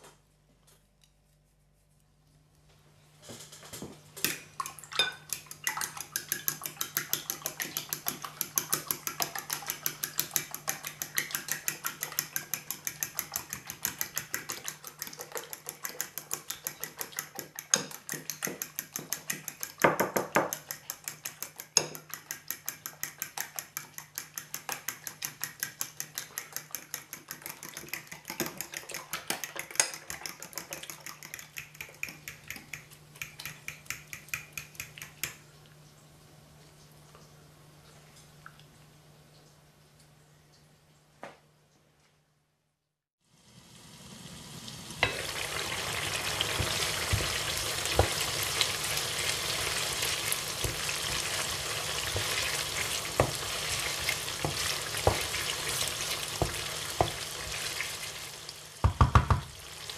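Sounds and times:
fork whisking eggs in glass bowl: 0:04.3 - 0:35.4, 0:46.0 - 0:58.0.

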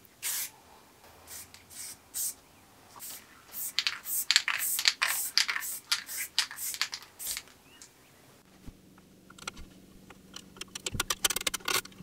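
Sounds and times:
spray paint can spurts: 0:03.0 - 0:07.6.

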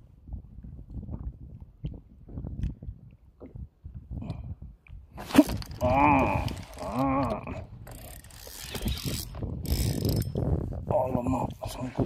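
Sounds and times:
wordless vocal sounds: 0:05.8 - 0:07.7, 0:10.9 - 0:12.0
fishing reel clicking: 0:07.8 - 0:10.5.

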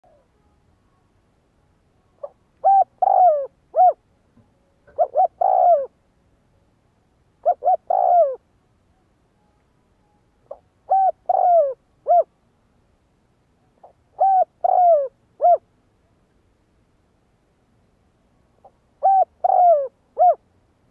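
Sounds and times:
dove cooing: 0:02.2 - 0:04.0, 0:04.8 - 0:06.0, 0:07.4 - 0:08.4, 0:10.4 - 0:12.3, 0:13.8 - 0:15.6, 0:18.6 - 0:20.4.

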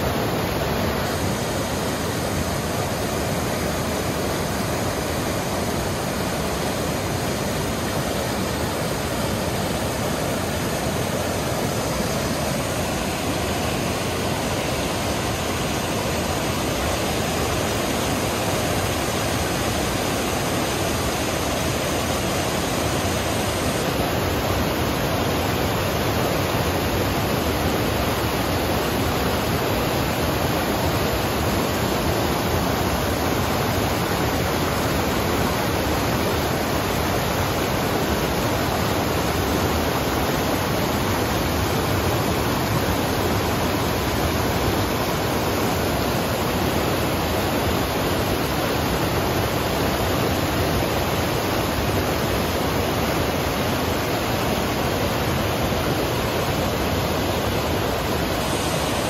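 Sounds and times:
river rushing over boulders: 0:00.0 - 0:59.0.

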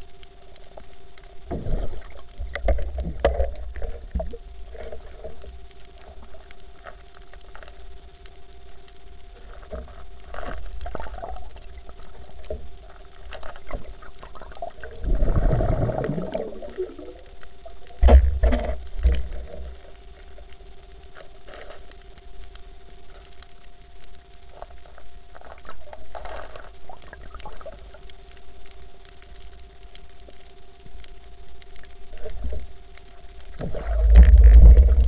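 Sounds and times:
faint steady hum: 0:00.0 - 0:35.0
underwater clicks and crackles: 0:00.0 - 0:35.0
bubbly gurgling: 0:01.4 - 0:05.5, 0:10.8 - 0:20.0, 0:25.6 - 0:28.0, 0:33.4 - 0:35.0
low thumps: 0:33.6 - 0:35.0.

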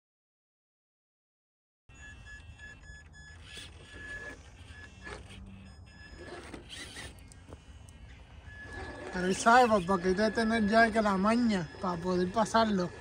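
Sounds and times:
electric motor and gearbox whine: 0:01.9 - 0:13.0
tires knocking and scraping on rock: 0:03.3 - 0:13.0.

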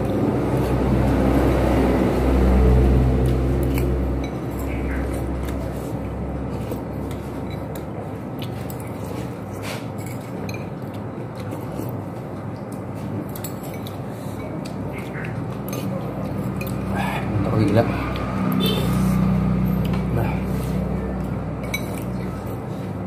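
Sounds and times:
steady background noise: 0:00.0 - 0:23.0
cutlery clinking on ceramic bowls: 0:09.9 - 0:11.0, 0:13.3 - 0:16.9, 0:21.6 - 0:22.3.

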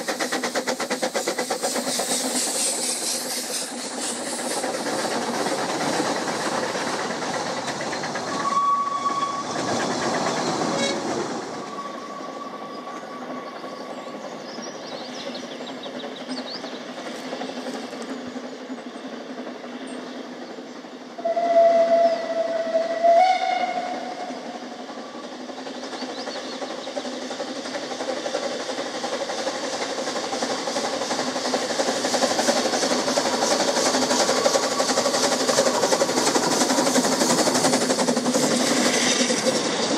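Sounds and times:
steam locomotive exhaust and hiss: 0:00.0 - 0:39.9
steam whistle: 0:08.4 - 0:09.6, 0:21.2 - 0:24.5.

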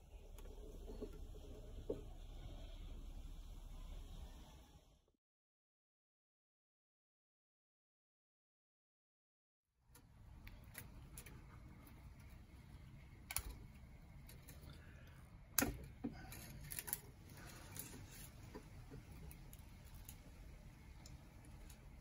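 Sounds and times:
low room hum: 0:00.0 - 0:05.1, 0:09.8 - 0:22.0.

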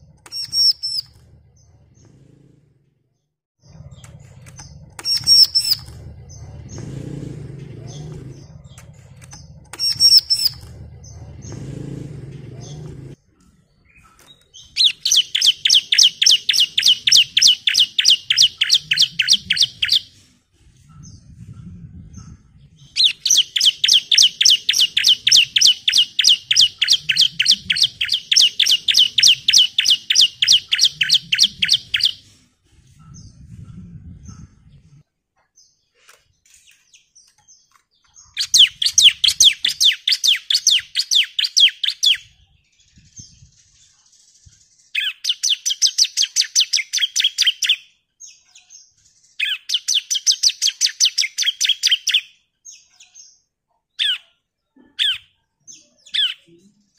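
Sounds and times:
bird rapid sharp chirps: 0:00.0 - 0:02.3, 0:03.6 - 0:12.9, 0:13.8 - 0:20.2, 0:22.2 - 0:32.4, 0:36.6 - 0:48.0, 0:49.2 - 0:53.2.

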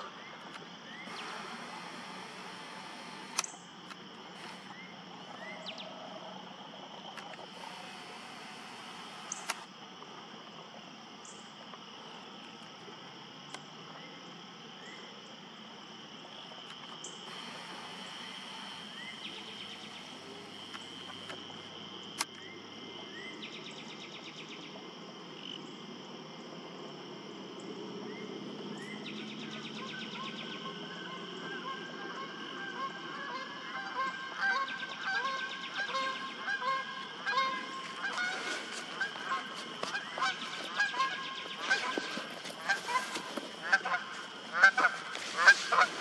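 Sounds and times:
insect chorus chirring: 0:00.0 - 0:46.0
sharp click: 0:03.2 - 0:04.7, 0:09.3 - 0:09.7.

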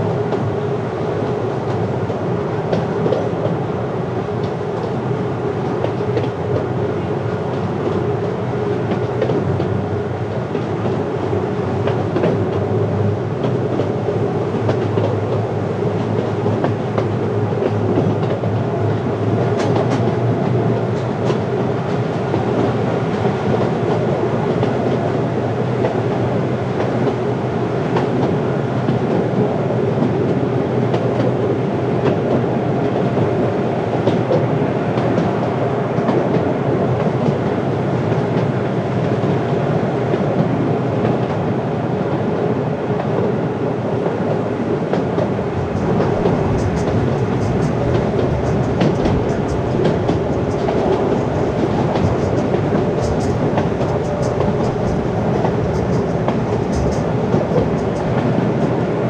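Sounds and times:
miniature train rumbling: 0:44.9 - 0:59.0
wheels clicking over rail joints: 0:45.6 - 0:58.5.

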